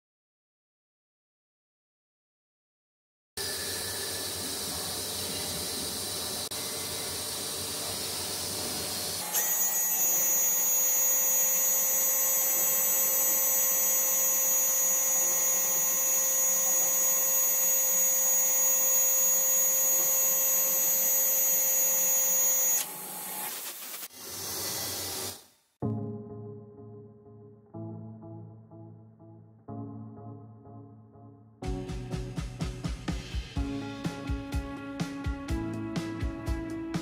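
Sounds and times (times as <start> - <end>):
high-pitched engraving whine: 3.4 - 23.5.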